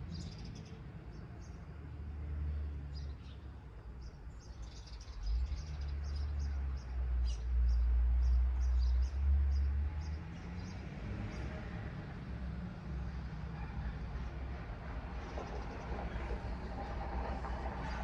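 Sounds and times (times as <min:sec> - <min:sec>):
small birds chirping: 0:00.0 - 0:01.6, 0:02.9 - 0:11.6.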